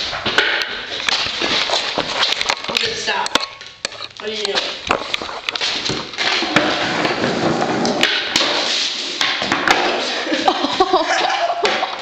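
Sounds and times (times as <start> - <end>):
skateboard rolling over concrete: 5.0 - 10.1.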